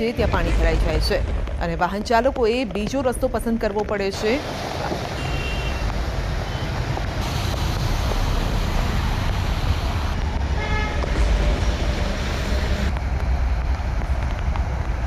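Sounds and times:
car horn toot: 0:05.2 - 0:05.9, 0:10.6 - 0:11.0.

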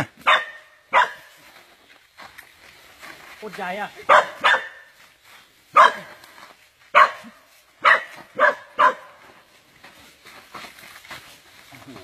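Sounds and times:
dog barking: 0:00.2 - 0:01.3, 0:04.1 - 0:04.9, 0:05.7 - 0:06.2, 0:06.9 - 0:09.2.

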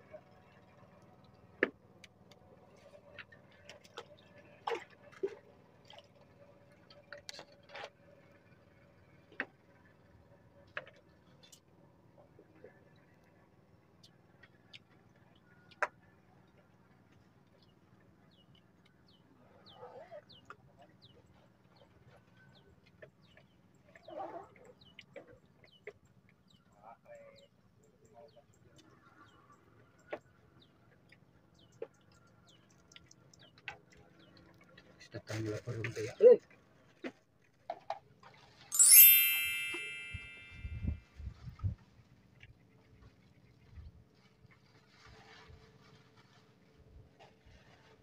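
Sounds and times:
small drips and clicks: 0:31.0 - 0:35.1.

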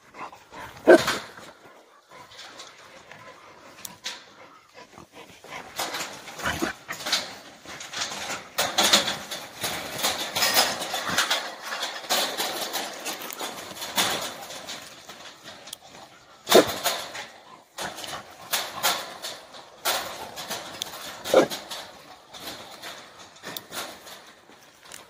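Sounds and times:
cage knocking and rattling: 0:05.5 - 0:25.0.

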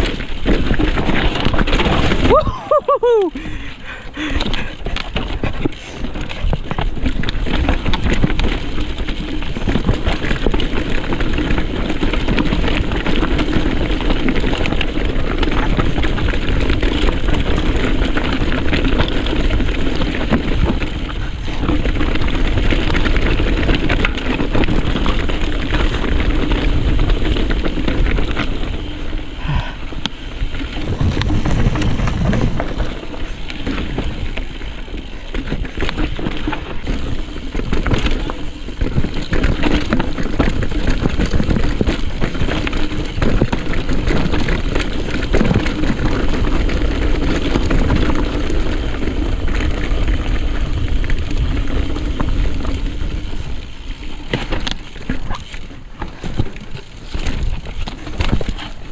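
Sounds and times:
tyres grinding over rock: 0:00.0 - 0:02.8, 0:03.8 - 0:58.9
bike rattling: 0:00.0 - 0:58.9
wind rumble on microphone: 0:00.0 - 0:58.9.

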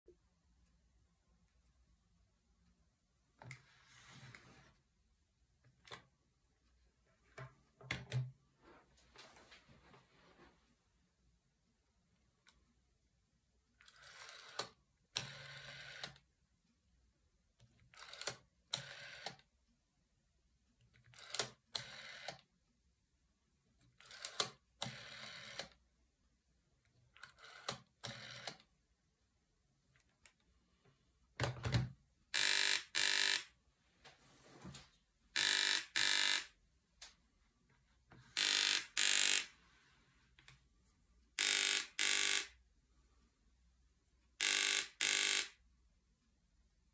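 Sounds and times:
rotary dial winding and running back: 0:13.8 - 0:16.2, 0:17.8 - 0:19.4, 0:21.0 - 0:22.4, 0:24.0 - 0:25.8, 0:27.1 - 0:28.6, 0:32.4 - 0:33.5, 0:35.4 - 0:36.5, 0:38.4 - 0:39.5, 0:41.4 - 0:42.6, 0:44.4 - 0:45.6
telephone buzzer ringing: 0:15.2 - 0:16.1, 0:18.0 - 0:19.3, 0:21.2 - 0:22.4, 0:24.1 - 0:25.6, 0:27.3 - 0:28.6, 0:32.3 - 0:33.5, 0:35.4 - 0:36.6, 0:38.4 - 0:39.5, 0:41.4 - 0:42.6, 0:44.4 - 0:45.6.

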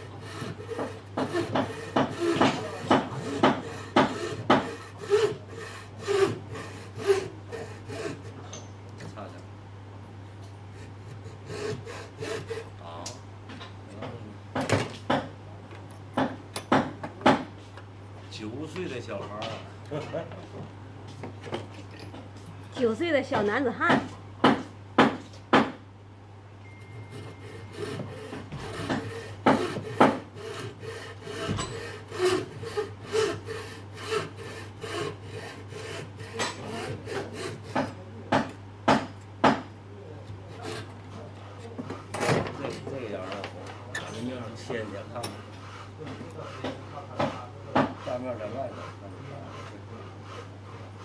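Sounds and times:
saw cutting wood: 0:00.0 - 0:08.4, 0:10.8 - 0:12.7, 0:26.9 - 0:39.6, 0:40.4 - 0:41.0, 0:44.7 - 0:51.0
sharp knocks: 0:00.4 - 0:04.8, 0:16.2 - 0:17.5, 0:23.3 - 0:25.8, 0:27.8 - 0:30.7, 0:31.3 - 0:32.7, 0:36.4 - 0:39.7.

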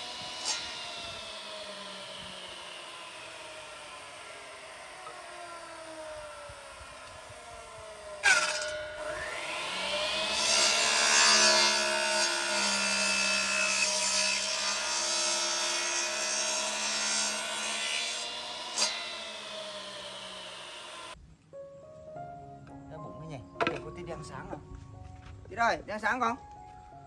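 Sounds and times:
miter saw motor whining: 0:00.0 - 0:21.2
saw blade cutting wood: 0:00.0 - 0:21.2.

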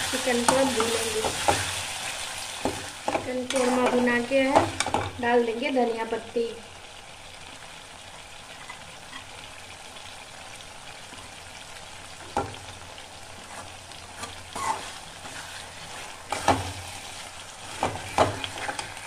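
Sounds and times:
food sizzling in a metal pan: 0:00.0 - 0:19.0
spatula knocking and scraping pan: 0:00.3 - 0:01.7, 0:02.6 - 0:05.2, 0:13.4 - 0:16.9, 0:17.6 - 0:19.0.

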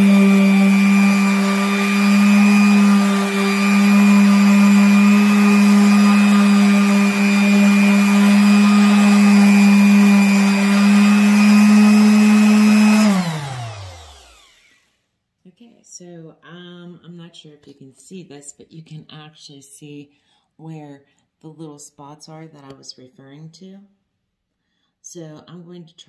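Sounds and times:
orbital sander running: 0:00.0 - 0:15.0
sander motor winding down: 0:00.0 - 0:15.0.

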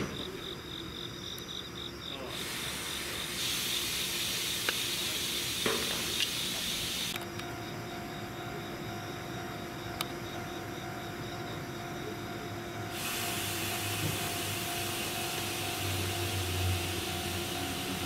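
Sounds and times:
train electrical hum: 0:00.0 - 0:18.0
broad hiss: 0:02.1 - 0:07.2, 0:12.9 - 0:18.0.

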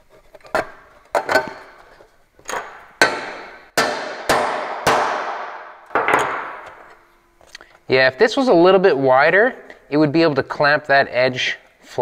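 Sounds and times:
hammer striking metal die: 0:02.5 - 0:06.9.

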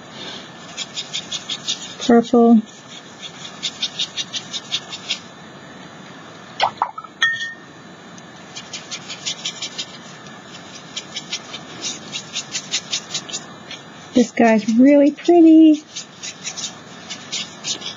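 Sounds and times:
crayon scratching on paper: 0:00.6 - 0:05.3, 0:08.5 - 0:17.9.

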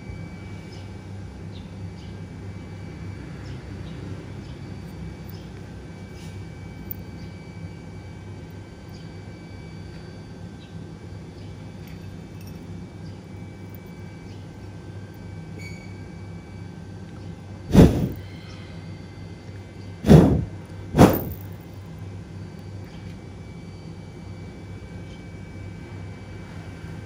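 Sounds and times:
low background hum: 0:00.0 - 0:27.0
loud thumps: 0:20.1 - 0:21.4.

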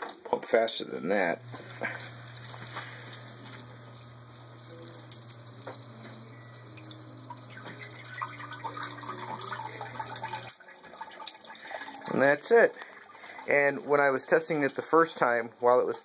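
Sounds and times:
sump pump humming: 0:01.2 - 0:16.0
water trickling and splashing: 0:04.6 - 0:16.0.

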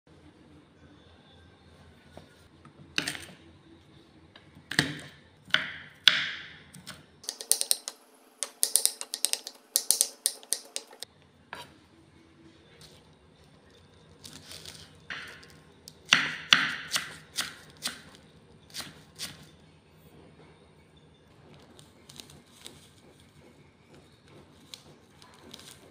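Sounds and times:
kitchen knocks and clinks: 0:03.0 - 0:03.4, 0:07.2 - 0:11.0, 0:15.1 - 0:17.1.

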